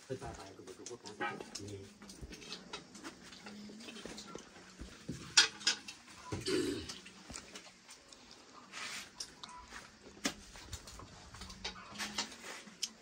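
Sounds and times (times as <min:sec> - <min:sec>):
metal dishes clinking: 0:05.0 - 0:07.0.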